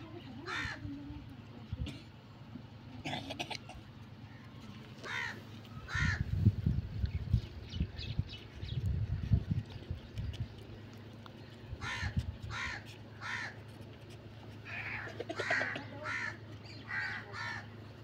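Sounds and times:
crows cawing: 0.4s - 0.8s, 5.0s - 6.4s, 11.8s - 13.6s, 14.6s - 17.8s.

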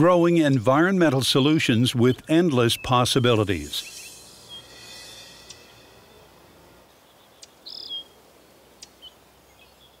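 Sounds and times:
low hiss: 0.0s - 10.0s
high bird call: 1.4s - 8.2s.

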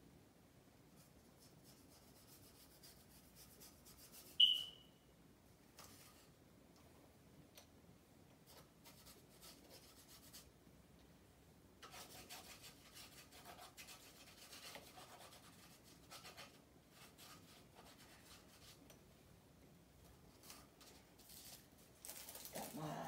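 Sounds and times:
tissue paper crinkling: 21.2s - 23.0s.

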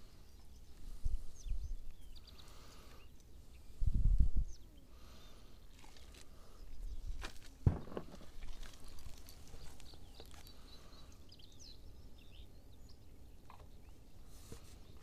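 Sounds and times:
birds chirping: 0.0s - 15.0s
sharp thump: 7.6s - 8.3s.

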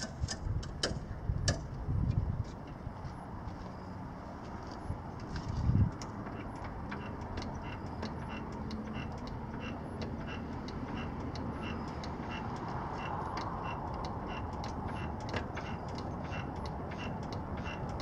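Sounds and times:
steady ticking: 0.0s - 3.0s, 4.9s - 18.0s.

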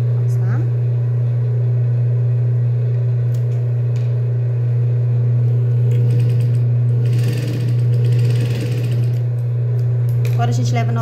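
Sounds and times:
sewing machine motor humming: 5.8s - 9.4s.

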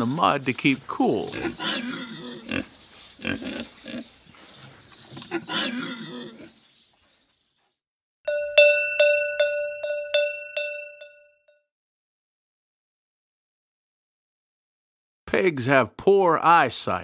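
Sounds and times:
pig grunting and squealing: 0.0s - 4.2s, 5.1s - 6.6s
cowbell ringing: 8.3s - 11.5s.

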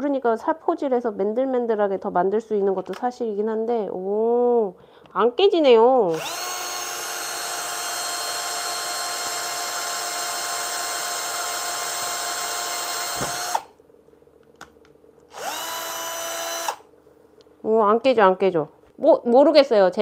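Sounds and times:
cordless drill boring into resin: 6.1s - 13.7s, 15.3s - 16.8s.

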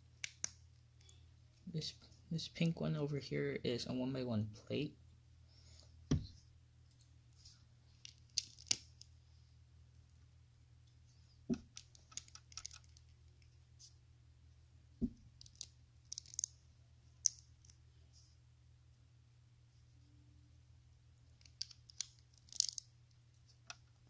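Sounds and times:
faint low hum: 0.0s - 24.0s
plastic bricks clicking: 11.5s - 13.1s, 15.4s - 16.5s, 21.4s - 22.8s.

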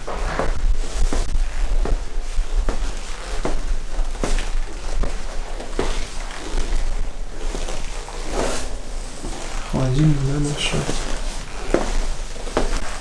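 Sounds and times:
footsteps on tiled floor: 0.0s - 13.0s.

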